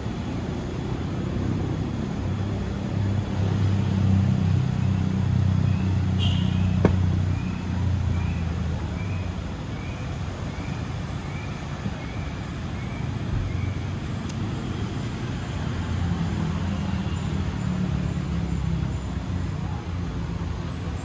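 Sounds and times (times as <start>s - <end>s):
road traffic rumble: 0.0s - 21.0s
bird chirping: 4.8s - 14.0s.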